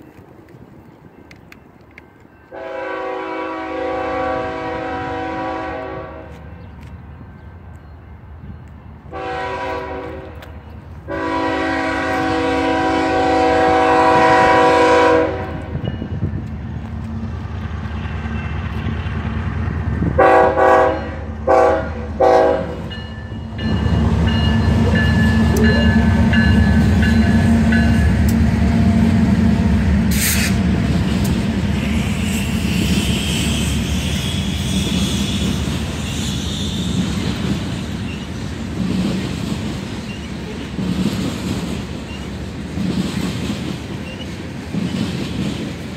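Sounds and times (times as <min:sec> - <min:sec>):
locomotive engines rumbling: 0:00.0 - 0:45.9
train cars rolling on rails: 0:00.0 - 0:45.9
train air horn blasts: 0:02.5 - 0:06.5, 0:09.1 - 0:10.4, 0:11.0 - 0:15.8, 0:20.2 - 0:22.9, 0:30.1 - 0:30.6
high wheel squeal: 0:31.8 - 0:37.4.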